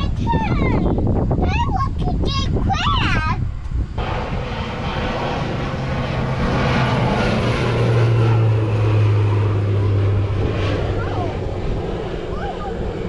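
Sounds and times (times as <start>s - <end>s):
propeller airplane passing overhead: 0.0s - 13.0s.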